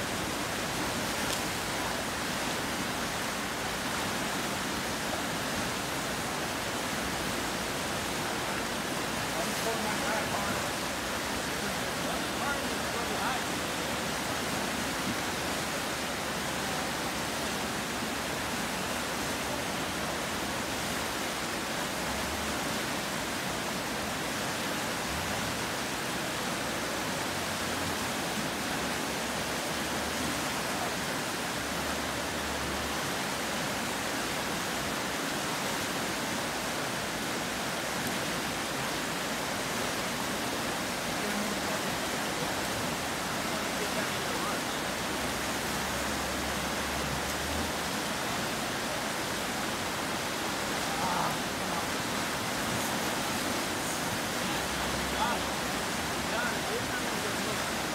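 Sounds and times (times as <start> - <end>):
creek water rushing over rapids: 0.0 - 57.9.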